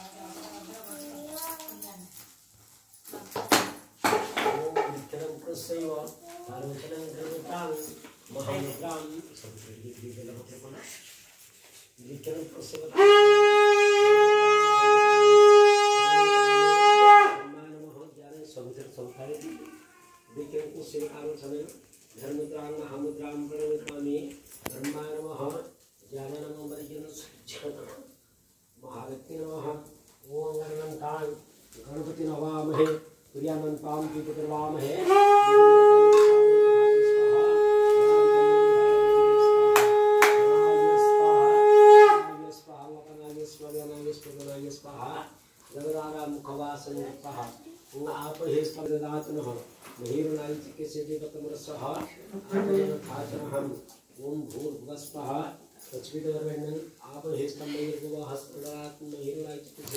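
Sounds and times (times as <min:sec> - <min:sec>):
conch shell blown: 0:12.8 - 0:17.7, 0:34.8 - 0:42.7.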